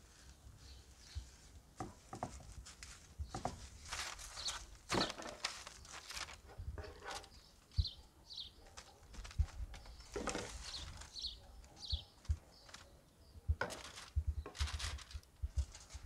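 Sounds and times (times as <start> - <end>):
parchment paper crinkling: 0.0 - 7.9, 8.6 - 16.0
bird chirping: 0.6 - 1.5, 3.2 - 6.0, 6.8 - 14.6.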